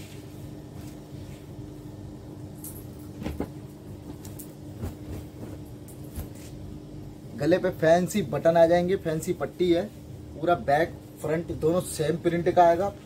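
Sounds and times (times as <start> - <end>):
clothes rustling: 0.0 - 1.6, 2.6 - 6.6
steady low hum: 0.0 - 13.0.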